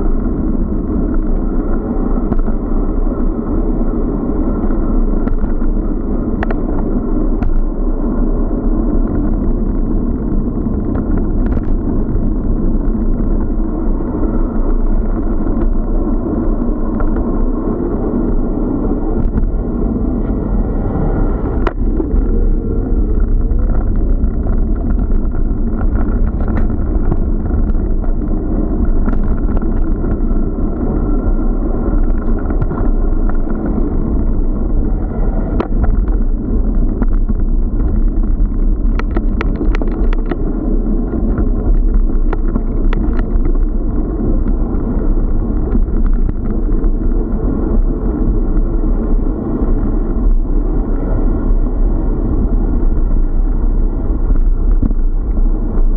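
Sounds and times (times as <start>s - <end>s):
wind and road noise on microphone: 0.0s - 55.9s
small clicks and knocks: 10.8s - 11.8s, 23.1s - 30.2s, 37.0s - 40.5s, 41.3s - 43.7s.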